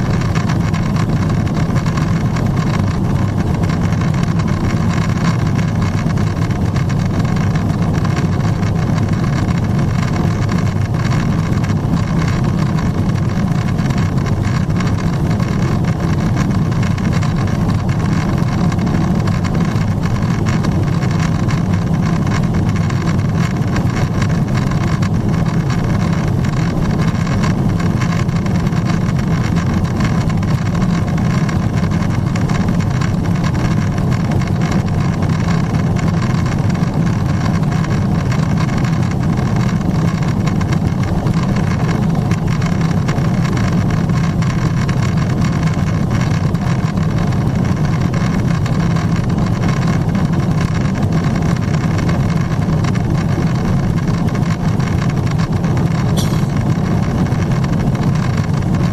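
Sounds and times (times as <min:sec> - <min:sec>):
airflow over aircraft fuselage: 0:00.0 - 0:58.9
jet engine drone: 0:53.6 - 0:58.9.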